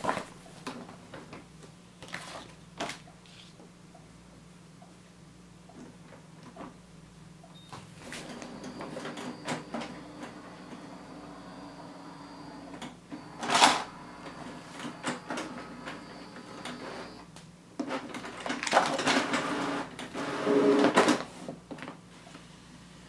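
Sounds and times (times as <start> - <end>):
printer mechanism whirring: 8.1 - 17.2, 17.8 - 21.2.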